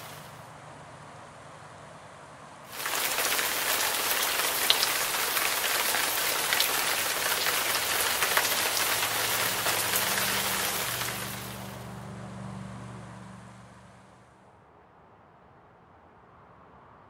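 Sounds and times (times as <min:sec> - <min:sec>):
waterfall splashing: 0:00.0 - 0:00.3, 0:02.7 - 0:11.9.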